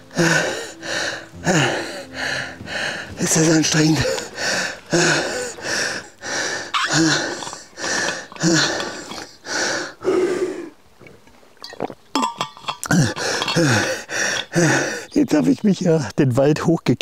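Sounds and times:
man breathing hard and grunting: 0:00.1 - 0:10.7, 0:12.8 - 0:15.2.

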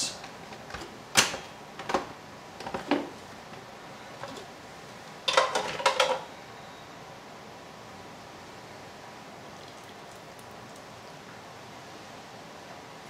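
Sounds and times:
kitchenware knocking and clinking: 0:05.3 - 0:06.2.

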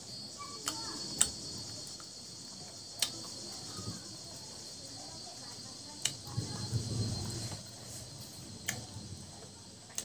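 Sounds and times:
chewing food: 0:00.6 - 0:03.7, 0:08.6 - 0:10.0.

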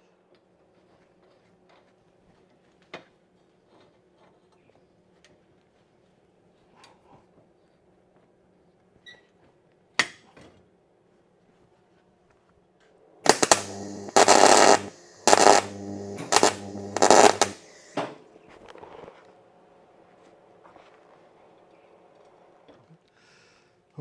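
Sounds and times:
arc welder crackling: 0:13.3 - 0:18.0
low electrical hum: 0:13.3 - 0:18.0.

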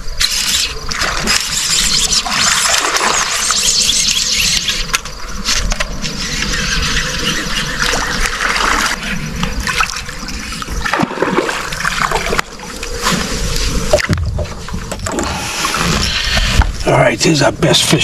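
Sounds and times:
water splashing: 0:00.9 - 0:04.2, 0:07.7 - 0:16.5.

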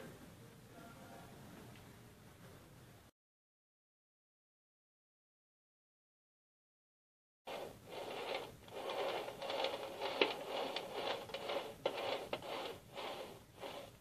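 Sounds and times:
knife scraping metal cake ring: 0:07.5 - 0:14.0.

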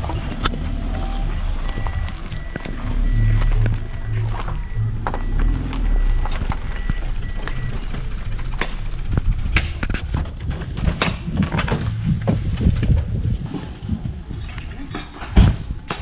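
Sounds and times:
sharp knocks and clacks: 0:06.3 - 0:13.1.

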